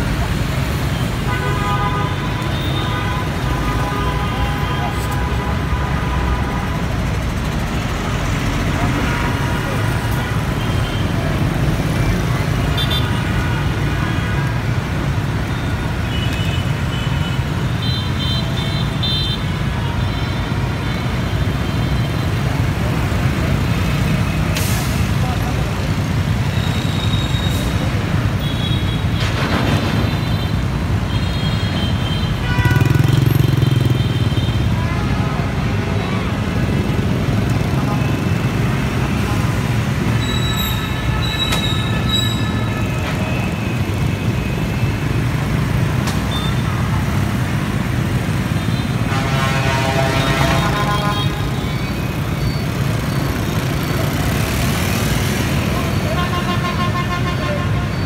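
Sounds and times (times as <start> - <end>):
traffic rumble: 0.0 - 58.0
motorbike engines passing: 31.9 - 58.0.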